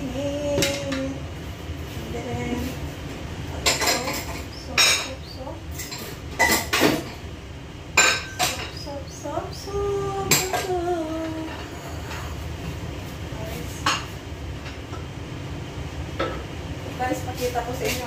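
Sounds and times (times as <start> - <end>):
cookware clinking and clanking: 3.6 - 7.2, 8.0 - 8.9.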